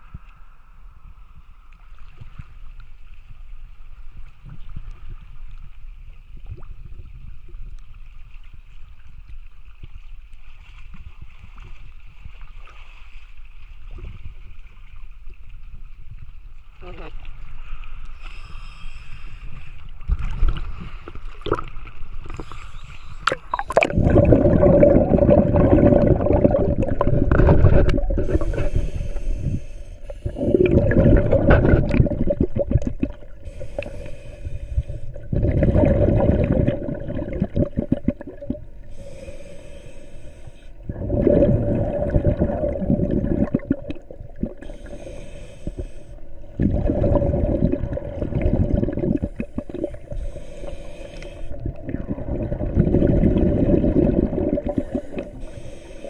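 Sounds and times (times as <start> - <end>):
regulator inhalation hiss: 18.2 - 19.8, 22.3 - 23.5, 28.2 - 30.8, 33.4 - 35.2, 38.8 - 40.8, 44.6 - 46.2, 49.2 - 51.6, 54.6 - 56.0
water sloshing: 20.0 - 56.0
bubbling underwater exhalations: 21.4 - 56.0.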